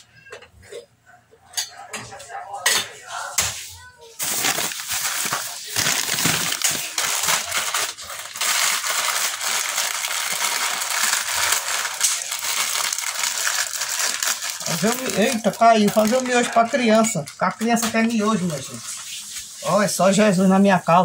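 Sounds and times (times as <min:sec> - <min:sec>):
plastic wrapper crinkling: 0:04.2 - 0:19.4.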